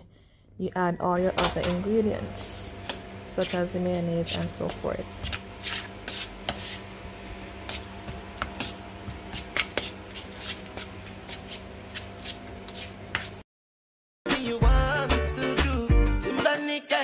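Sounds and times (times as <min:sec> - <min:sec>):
steady low hum: 0:00.0 - 0:13.2
utensil scraping plastic bowl: 0:02.8 - 0:07.0.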